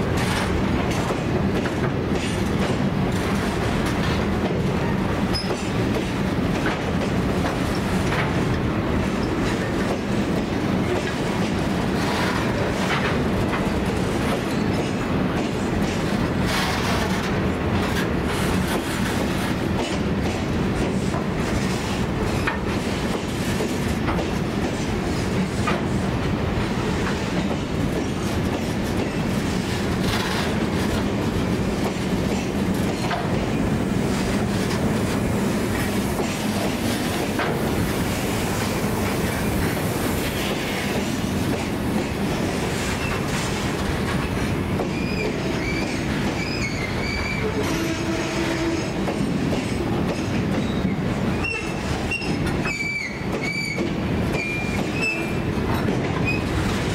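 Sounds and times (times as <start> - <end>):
train rumbling past: 0.0 - 56.9
high wheel squeals: 45.0 - 47.5.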